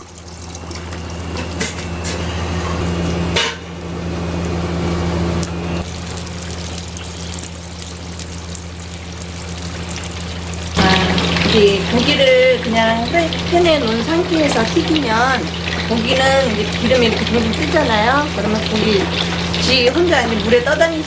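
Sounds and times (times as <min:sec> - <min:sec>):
oil sizzling and crackling: 0:00.0 - 0:01.9, 0:05.8 - 0:20.8
steady low hum: 0:00.0 - 0:20.9
oil pouring into skillet: 0:05.8 - 0:11.5.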